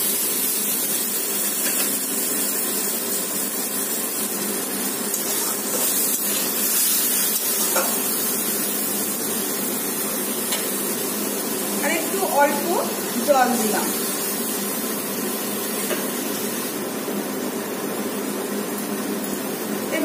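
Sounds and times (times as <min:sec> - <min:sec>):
food sizzling in a hot pan: 0:00.0 - 0:20.0
spatula scraping pan: 0:05.1 - 0:08.3.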